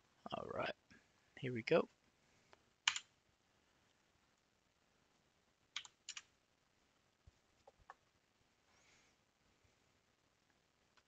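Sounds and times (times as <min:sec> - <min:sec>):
computer keyboard keystrokes: 0:02.8 - 0:03.1, 0:05.8 - 0:06.3.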